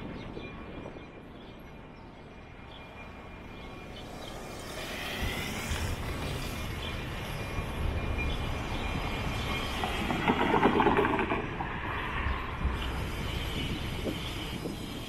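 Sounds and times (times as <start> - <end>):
train rumble and rail noise: 0.0 - 15.0.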